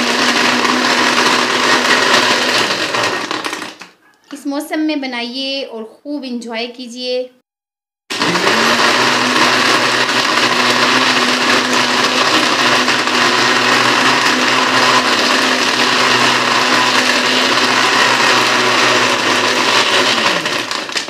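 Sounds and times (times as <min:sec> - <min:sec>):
blender motor whirring: 0:00.0 - 0:03.9, 0:08.1 - 0:21.0.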